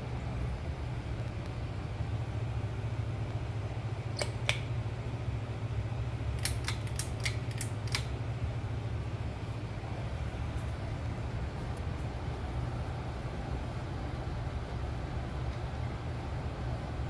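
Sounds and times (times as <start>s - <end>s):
steady low hum: 0.0s - 17.0s
pull-chain switch clicking: 6.4s - 8.1s.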